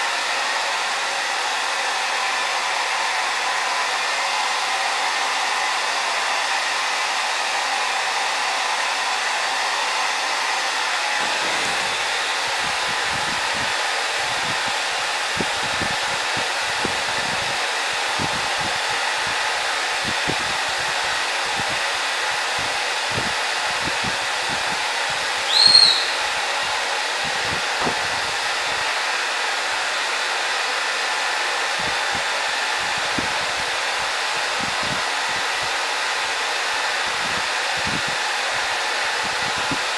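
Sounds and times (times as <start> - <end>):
hair dryer blowing: 0.0 - 39.9
short high squeak: 25.5 - 26.4.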